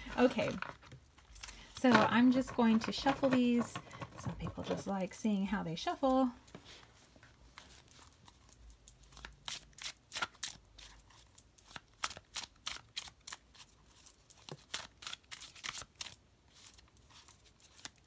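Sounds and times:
cards being shuffled: 0.0s - 3.8s, 7.5s - 18.0s.

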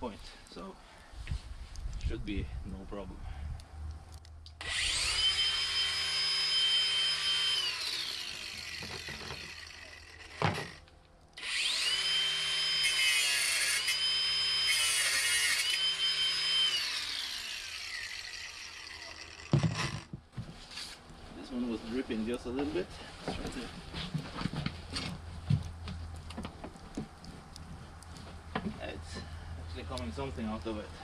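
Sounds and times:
cordless power tool cutting pipe: 4.6s - 20.2s.

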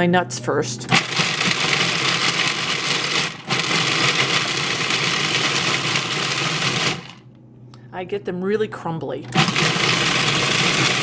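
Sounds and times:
food processor chopping nuts: 0.9s - 7.2s, 9.3s - 11.0s.

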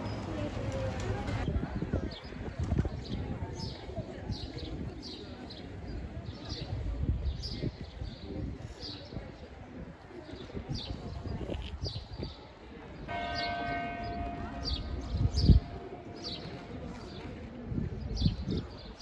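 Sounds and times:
street ambience rumble: 0.0s - 19.0s
church bell ringing: 13.1s - 17.6s.

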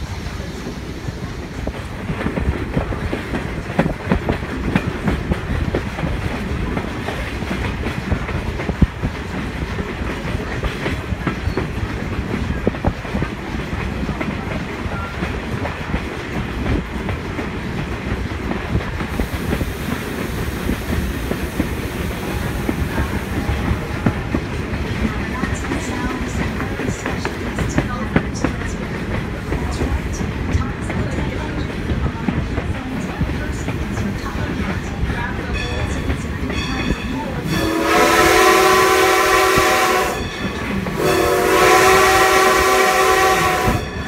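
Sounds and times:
clickety-clack over rail joints: 0.0s - 44.0s
train wheels rumbling: 0.0s - 44.0s.

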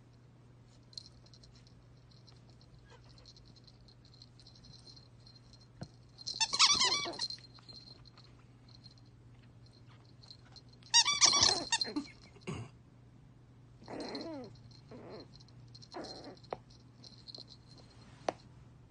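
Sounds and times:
squeaky dog toy squeaking: 6.3s - 7.4s, 10.9s - 12.1s.

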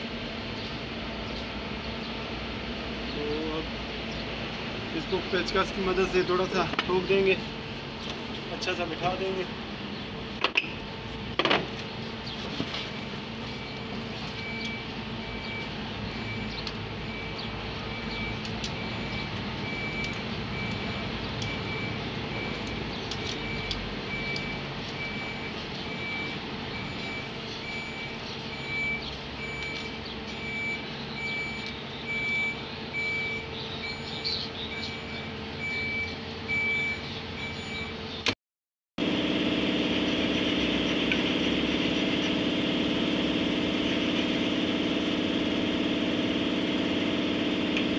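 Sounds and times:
engine hum: 0.0s - 38.3s, 39.0s - 47.9s
reversing alarm beeping: 12.8s - 38.0s.

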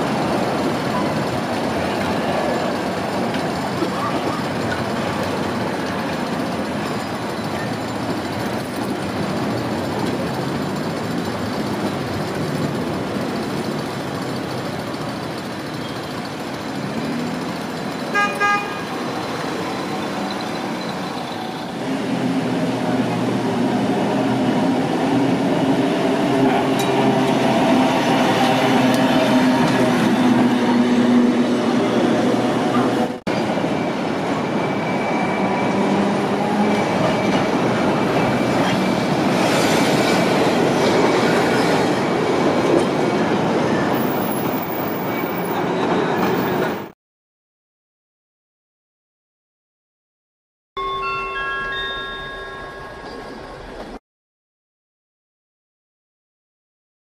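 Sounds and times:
low tram hum: 0.0s - 46.9s, 50.8s - 54.0s
traffic noise: 0.0s - 47.0s, 50.8s - 54.0s
tram passing on track: 0.0s - 47.0s, 50.8s - 54.0s
tram horn toots: 18.1s - 19.8s.

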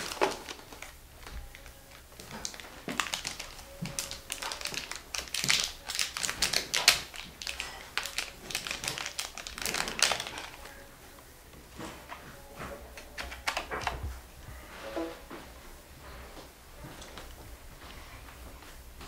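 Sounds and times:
plastic packaging crinkling: 0.0s - 10.9s.

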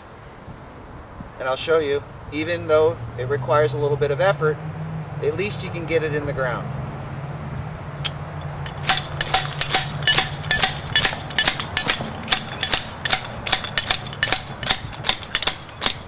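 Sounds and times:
ringing metallic clanks: 8.0s - 16.0s.

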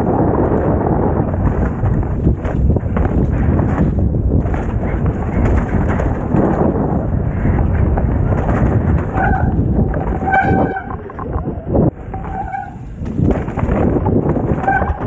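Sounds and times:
bike tyres rumbling through mud: 0.0s - 15.0s
wind on microphone: 0.0s - 15.0s
disc brakes squealing: 10.1s - 11.4s, 12.0s - 12.9s.

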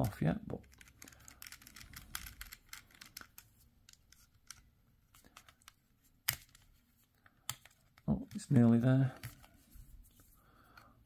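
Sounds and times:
allen key clicking and scratching: 0.6s - 5.7s.

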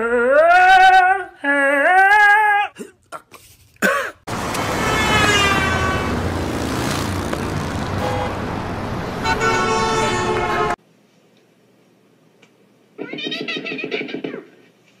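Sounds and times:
car horn: 4.3s - 6.5s, 7.4s - 10.8s
cars passing on street: 4.3s - 10.8s.

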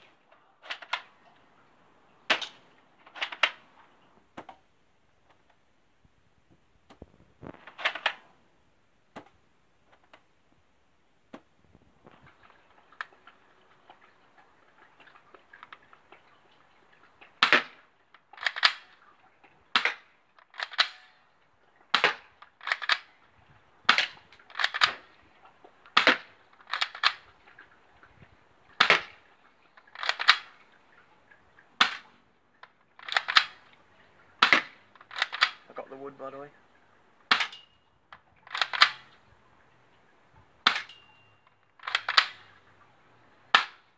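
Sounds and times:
toy rifle sharp pops: 2.3s - 2.6s, 17.4s - 17.8s, 19.7s - 20.0s, 21.9s - 23.1s, 23.9s - 25.1s, 25.9s - 27.2s, 28.8s - 29.2s, 31.8s - 32.1s, 34.4s - 35.7s, 37.3s - 37.6s, 40.6s - 41.0s, 41.8s - 42.5s, 43.5s - 43.8s
toy rifle clicks: 2.3s - 3.6s, 17.4s - 19.0s, 19.7s - 21.1s, 22.0s - 23.1s, 23.9s - 25.1s, 25.9s - 27.3s, 29.9s - 30.6s, 33.0s - 33.7s, 34.4s - 35.7s, 38.5s - 39.2s, 41.8s - 42.5s.

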